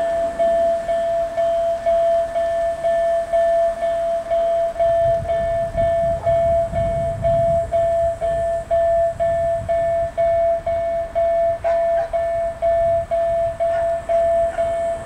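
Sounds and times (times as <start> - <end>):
crossing warning bell ringing: 0.0 - 15.0
low rumble: 4.8 - 15.0.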